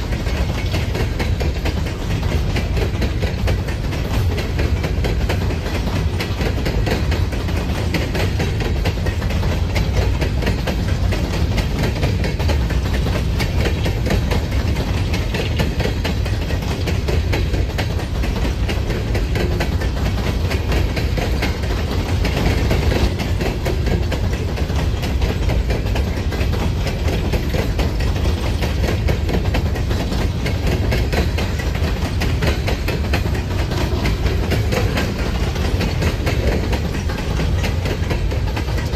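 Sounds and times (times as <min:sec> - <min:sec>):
freight train rumbling past: 0:00.0 - 0:38.9
train wheel clatter: 0:00.0 - 0:38.9.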